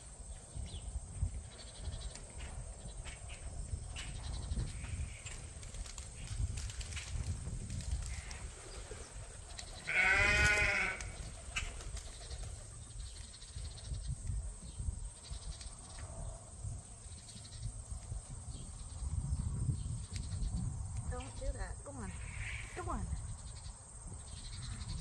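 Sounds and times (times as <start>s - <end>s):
sheep bleating: 9.9s - 11.1s.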